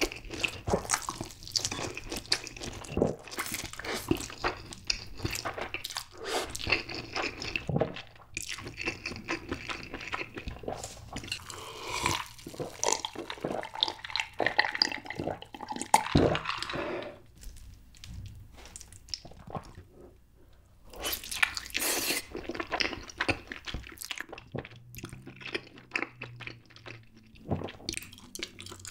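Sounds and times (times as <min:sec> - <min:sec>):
slurping and chewing noodles: 0:00.0 - 0:17.2, 0:20.9 - 0:28.9
gulping a drink: 0:11.3 - 0:16.8.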